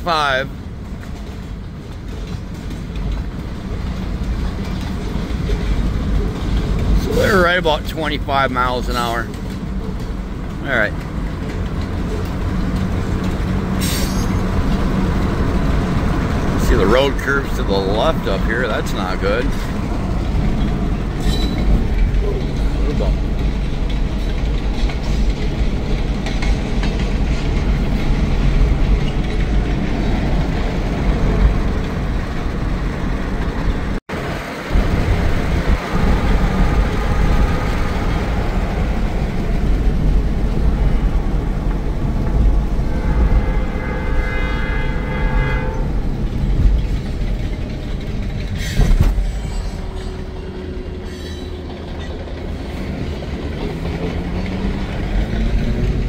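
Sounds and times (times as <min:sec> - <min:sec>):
car driving on gravel: 0:00.0 - 0:50.1
locomotive air horn: 0:42.6 - 0:46.8.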